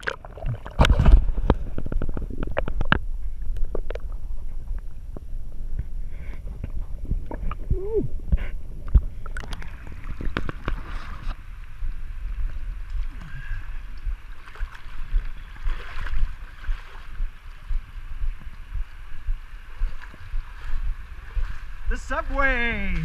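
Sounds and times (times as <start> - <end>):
knocks under water: 0.0 - 3.1
water sloshing and splashing: 0.0 - 23.0
low rumble: 0.3 - 22.1.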